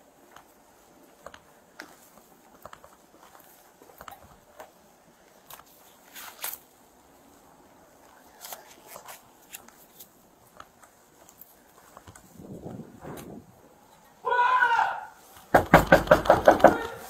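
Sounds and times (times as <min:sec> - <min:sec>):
footsteps on concrete: 0:00.0 - 0:13.7
clothing and gear rustling: 0:00.0 - 0:14.2.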